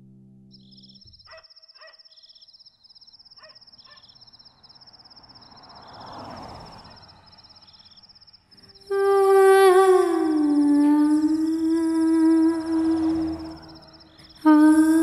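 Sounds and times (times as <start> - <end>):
crickets chirring: 0.6 - 15.0
faint dog barks: 1.3 - 2.1, 3.4 - 4.1.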